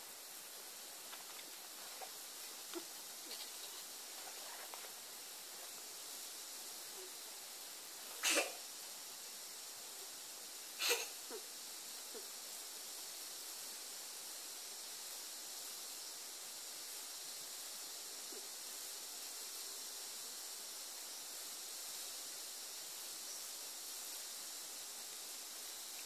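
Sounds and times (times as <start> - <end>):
faint steady hiss: 0.0 - 26.0.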